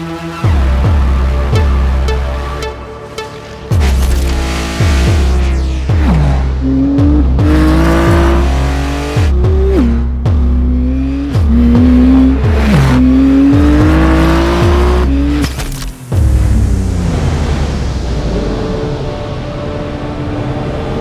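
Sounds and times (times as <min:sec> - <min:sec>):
music with deep bass: 0:00.0 - 0:21.0
race car engine revving: 0:03.7 - 0:15.6.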